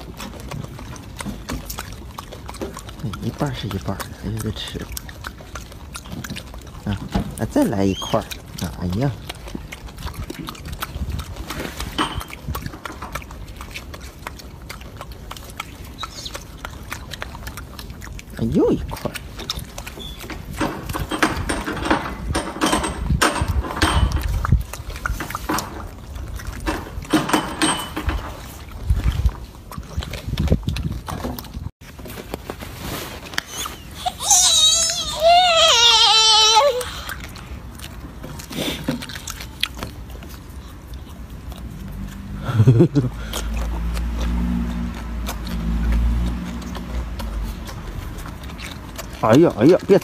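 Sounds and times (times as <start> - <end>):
monkey chewing wetly: 0.0 - 50.0
monkey wavering cry-like call: 33.5 - 37.1.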